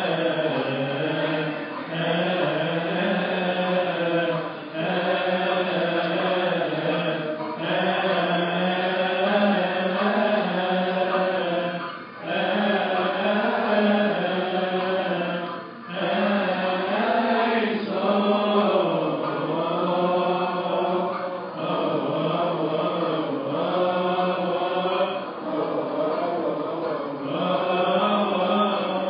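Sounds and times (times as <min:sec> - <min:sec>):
congregation chanting a hymn: 0:00.0 - 0:29.0.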